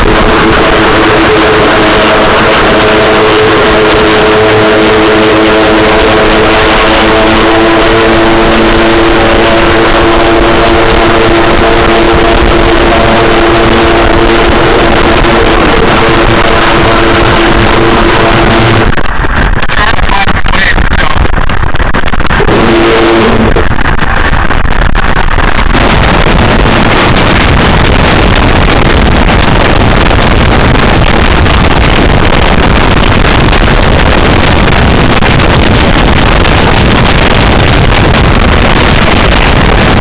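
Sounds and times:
rushing water: 0:00.0 - 0:19.8
boat engine drone: 0:00.0 - 0:40.0
wind: 0:00.0 - 0:40.0.

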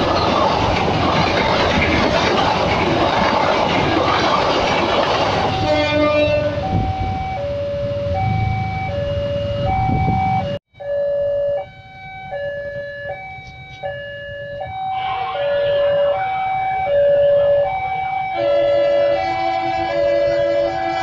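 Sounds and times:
passenger train rushing past: 0:00.0 - 0:10.6, 0:11.8 - 0:21.0
level-crossing two-note alarm: 0:06.3 - 0:20.4.

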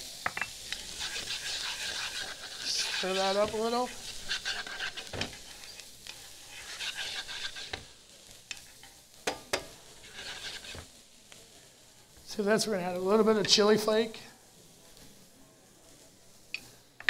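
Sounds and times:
vegetables sizzling in a pan: 0:00.0 - 0:17.0
utensil stirring and scraping: 0:00.6 - 0:10.9.

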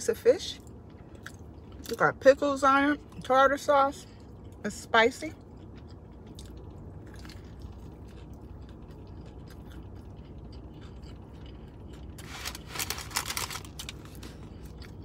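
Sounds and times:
chewing with wet clicks: 0:00.6 - 0:02.0, 0:04.0 - 0:12.2, 0:14.2 - 0:15.0
crisp crackling: 0:12.1 - 0:14.4.

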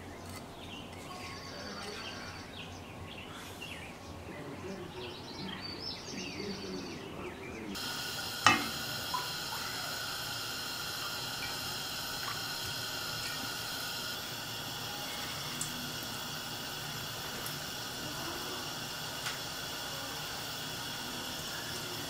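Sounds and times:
faint bird chirps: 0:00.0 - 0:07.8
oil pouring into frying pan: 0:07.8 - 0:22.0.

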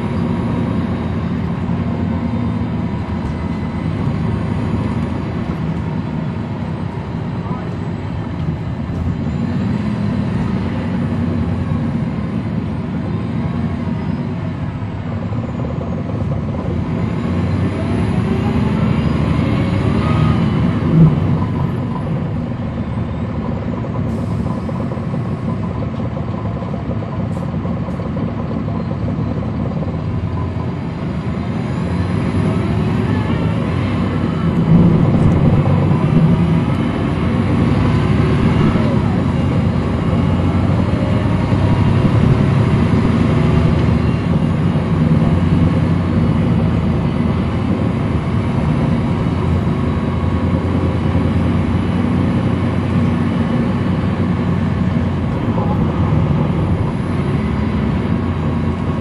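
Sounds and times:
bus diesel engine rumbling: 0:00.0 - 0:59.0.

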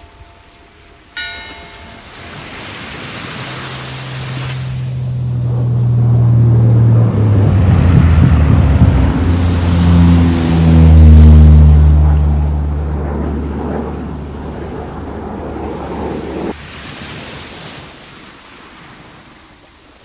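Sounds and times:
surf or wind hiss: 0:00.0 - 0:05.0, 0:16.5 - 0:20.0
low motor hum: 0:00.0 - 0:16.5.

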